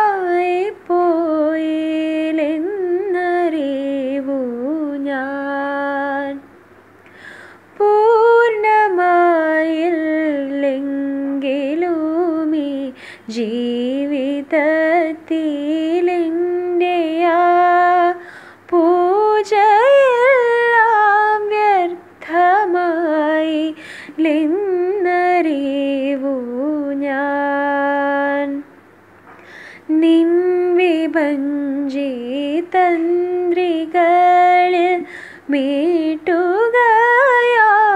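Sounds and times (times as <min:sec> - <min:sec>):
woman singing unaccompanied: 0:00.0 - 0:06.5, 0:07.6 - 0:28.7, 0:29.8 - 0:37.9.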